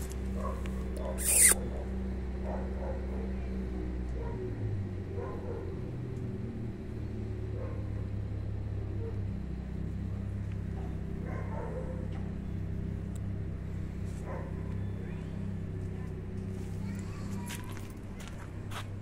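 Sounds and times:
low motor hum: 0:00.0 - 0:19.0
faint short sounds: 0:00.9 - 0:01.6.

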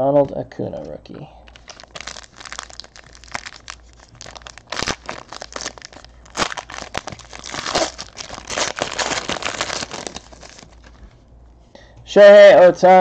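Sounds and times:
foil wrapper crinkling: 0:01.5 - 0:11.2.

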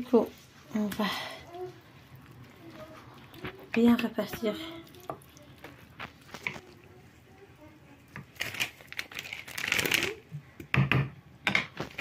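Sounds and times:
plastic bag crinkling: 0:08.2 - 0:10.3.

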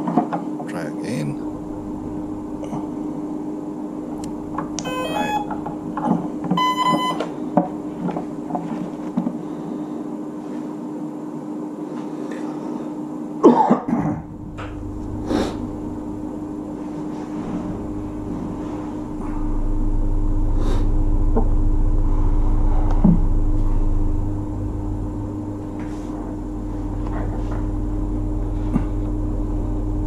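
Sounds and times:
long arming beep: 0:04.3 - 0:05.7, 0:06.6 - 0:07.3, 0:14.3 - 0:28.5
electronic power-up beeps: 0:04.8 - 0:05.5, 0:06.6 - 0:07.2.

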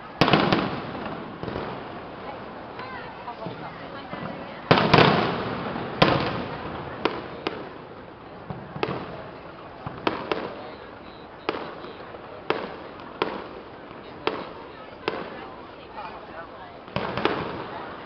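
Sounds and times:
firework sharp bangs: 0:00.0 - 0:15.6, 0:16.8 - 0:18.0
firework heavy boom: 0:00.2 - 0:02.5, 0:03.4 - 0:10.8, 0:16.9 - 0:18.0.

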